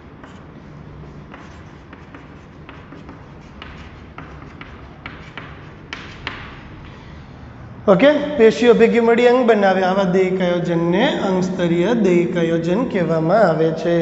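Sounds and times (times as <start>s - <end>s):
chalk tapping and scratching: 0.0s - 6.9s.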